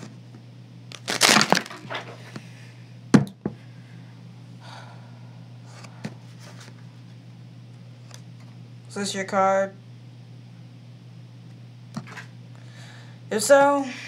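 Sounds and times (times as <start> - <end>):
cards riffle shuffling: 0.9 - 2.2.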